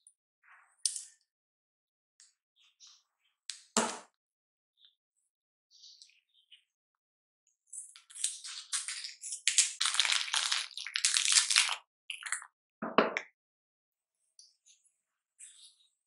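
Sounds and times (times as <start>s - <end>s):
plastic wrapper crinkling and tearing: 8.1s - 11.8s.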